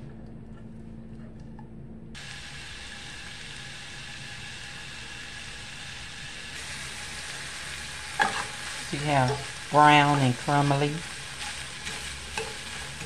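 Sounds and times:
sausage sizzling in a skillet: 2.2 - 13.0.

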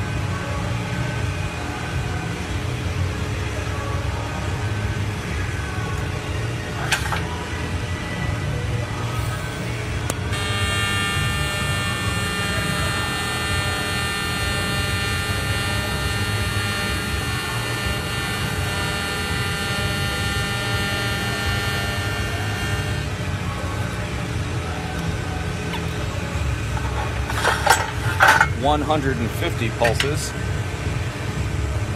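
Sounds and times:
welding arc buzzing: 9.1 - 24.0.

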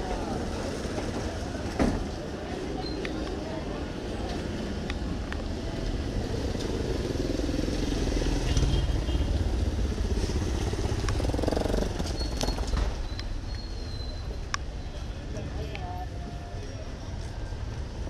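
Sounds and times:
street noise: 0.0 - 18.0
motorcycle engine running: 6.1 - 12.8.

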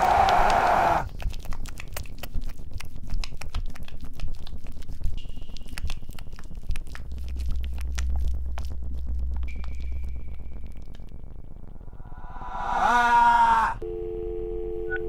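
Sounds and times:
deep hum: 0.0 - 15.0
dense crackling and clicking: 0.3 - 12.0
low rumble: 4.7 - 15.0.

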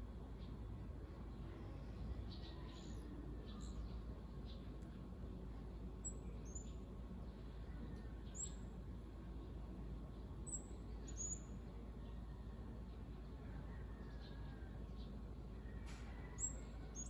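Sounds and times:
low background noise: 0.0 - 17.0.

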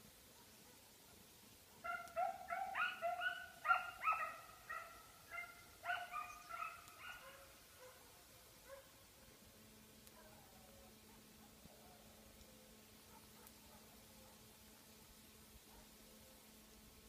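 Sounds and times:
hound baying: 1.8 - 8.0.

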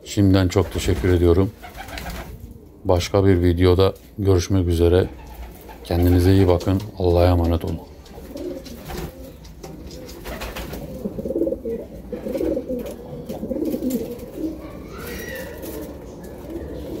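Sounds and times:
pigeons cooing: 0.5 - 3.5, 4.6 - 6.7, 7.3 - 17.0
wing flaps: 8.0 - 11.0.

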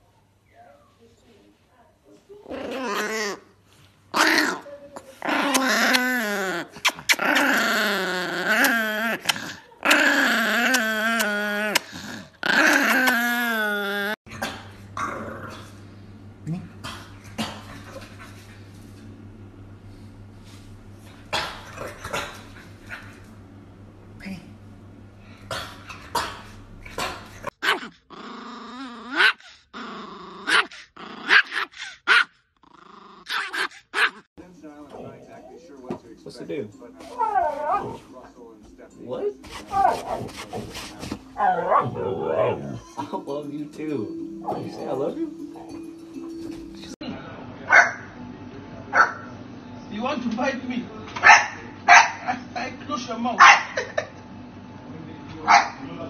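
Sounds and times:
small dog growl-whining: 2.4 - 3.5, 4.1 - 15.7, 26.0 - 34.3, 37.1 - 38.1, 39.5 - 43.0
small dog barking: 27.0 - 27.9, 30.4 - 32.3, 33.3 - 34.2, 47.7 - 48.1, 51.2 - 52.3, 53.4 - 53.8, 55.5 - 55.8.

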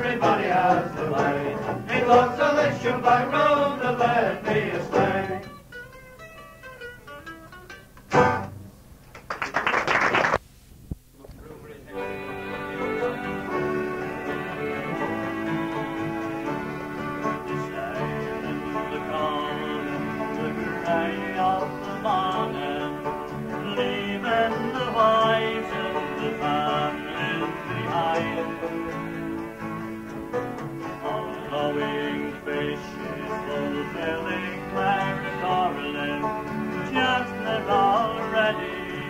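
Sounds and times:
acoustic folk music on plucked strings: 0.0 - 8.8, 11.9 - 39.0.

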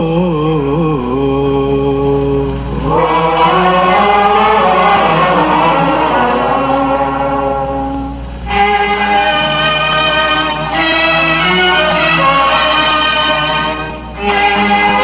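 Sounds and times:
arabic ensemble holding long notes: 0.8 - 15.0.

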